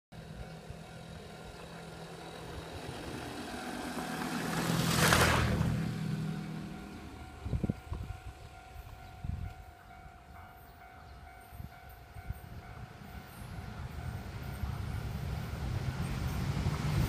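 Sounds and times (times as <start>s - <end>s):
vehicle passing by: 1.8s - 7.4s.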